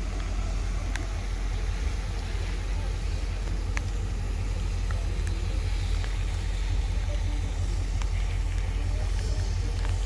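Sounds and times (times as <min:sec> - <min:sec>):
diesel locomotive engine rumble: 0:00.0 - 0:10.0
heavy rain hissing: 0:00.0 - 0:10.0
raindrop taps: 0:00.1 - 0:01.1, 0:03.3 - 0:06.4, 0:07.9 - 0:10.0.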